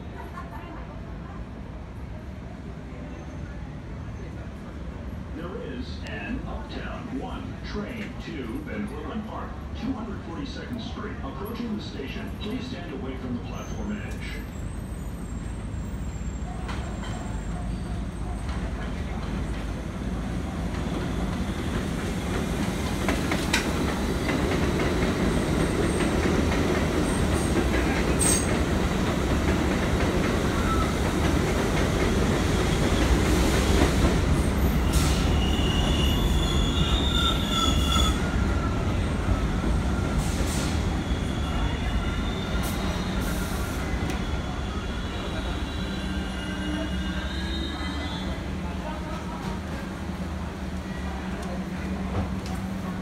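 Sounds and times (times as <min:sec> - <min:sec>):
subway train rumbling: 0:00.0 - 0:53.0
high wheel squeal: 0:34.6 - 0:48.4.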